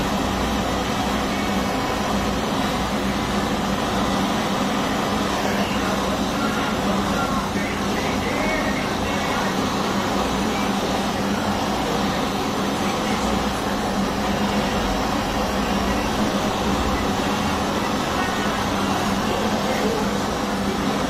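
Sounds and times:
gas torch flame rushing: 0:00.0 - 0:21.0
low steady hum: 0:00.0 - 0:21.0.

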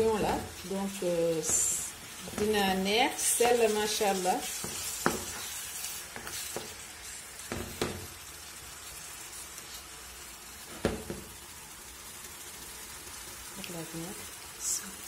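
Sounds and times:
meat sizzling in a frying pan: 0:00.0 - 0:15.0
wooden spatula knocking pan: 0:02.2 - 0:02.8, 0:04.6 - 0:05.4, 0:07.5 - 0:08.1, 0:10.7 - 0:11.3.

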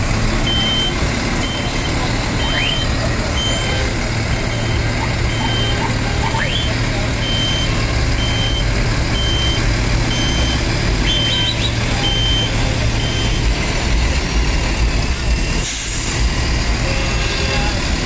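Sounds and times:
bus engine idling: 0:00.0 - 0:18.0
high electronic warning beep: 0:00.4 - 0:03.8, 0:04.5 - 0:13.5.

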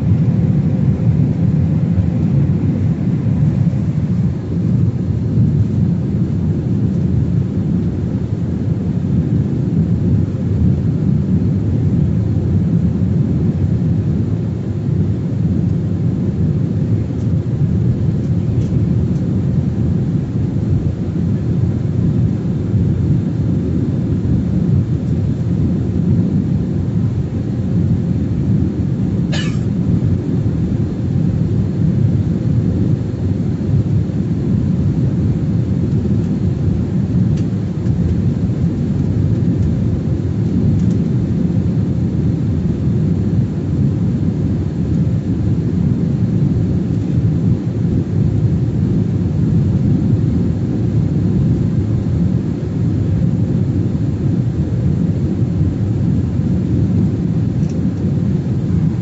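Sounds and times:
airliner engine rumble in cabin: 0:00.0 - 0:59.0
click: 0:40.8 - 0:41.1, 0:57.6 - 0:57.8.

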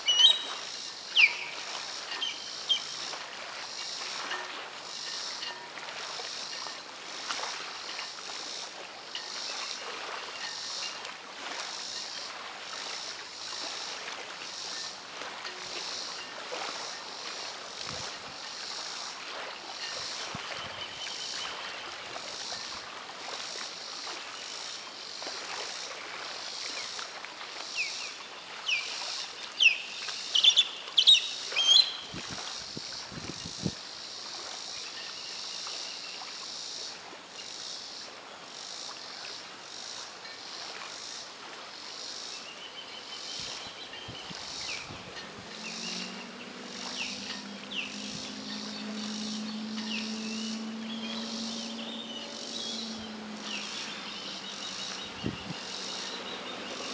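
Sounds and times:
water hiss: 0:00.0 - 0:42.6
pulsing drone of insects: 0:00.0 - 0:56.9
bird chirping sharply: 0:30.4 - 0:32.0
breeze: 0:43.2 - 0:56.9.

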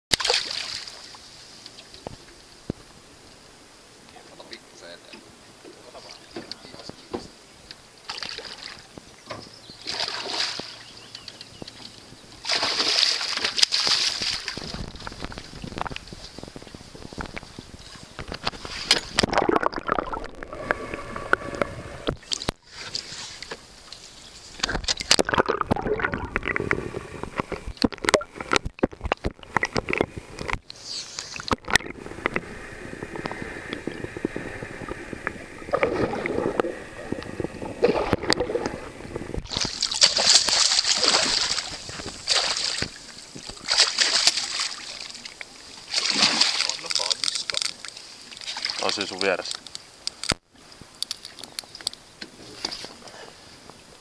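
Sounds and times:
water splashing beside boat: 0:00.1 - 0:03.1, 0:04.1 - 0:50.3
fish thrashing at surface: 0:39.4 - 0:43.0.

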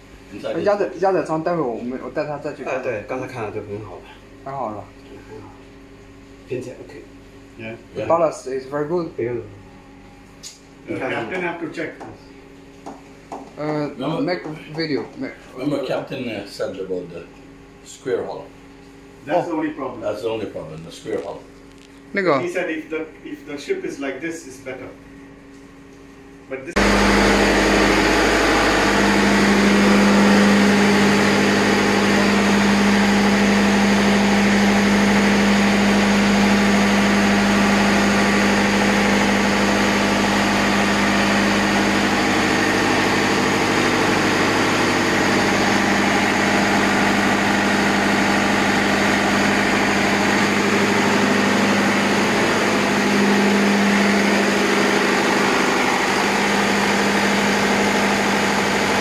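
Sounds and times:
diesel engine droning: 0:26.8 - 0:59.0.

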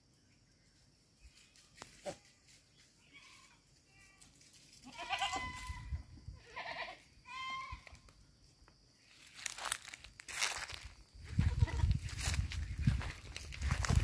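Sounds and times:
goat bleating: 0:03.0 - 0:08.0, 0:11.4 - 0:12.0.

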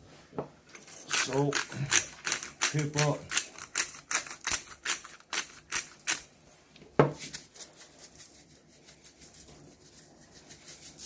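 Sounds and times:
pepper grinder clicking: 0:01.1 - 0:06.3.

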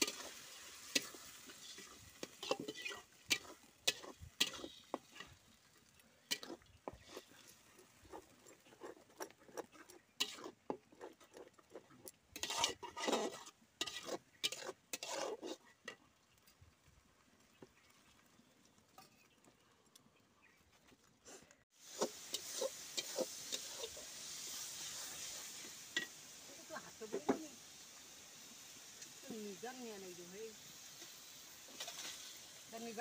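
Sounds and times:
metal spatula scraping pan: 0:00.0 - 0:05.4, 0:06.3 - 0:15.8, 0:21.9 - 0:26.2, 0:31.7 - 0:32.4
masala sizzling in hot pan: 0:00.0 - 0:19.6, 0:21.6 - 0:33.0.

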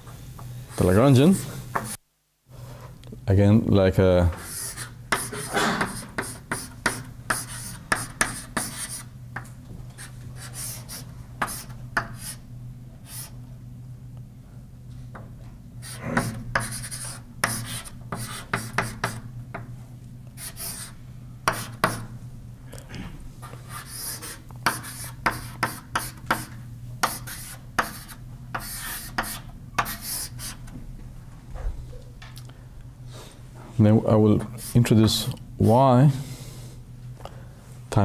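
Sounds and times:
steady low hum: 0:00.0 - 0:38.0
chalk tapping and scratching on board: 0:01.7 - 0:02.0, 0:04.3 - 0:12.4, 0:13.1 - 0:13.3, 0:15.8 - 0:19.7, 0:20.4 - 0:22.1, 0:23.7 - 0:30.6.

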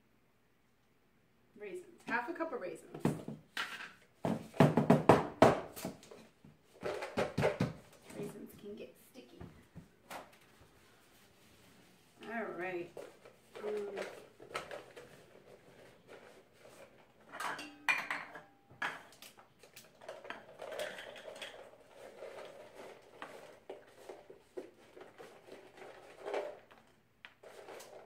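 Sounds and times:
utensils clinking against bowl: 0:17.3 - 0:19.4.

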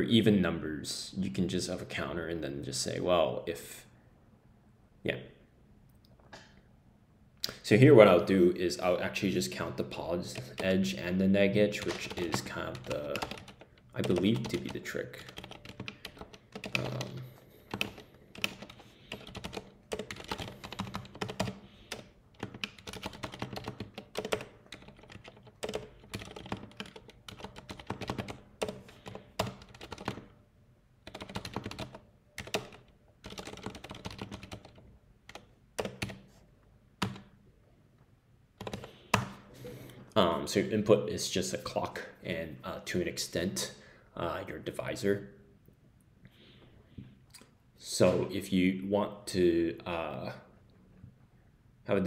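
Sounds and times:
typing on computer keyboard: 0:11.8 - 0:30.3, 0:31.0 - 0:36.2, 0:37.0 - 0:37.3, 0:38.6 - 0:39.3.

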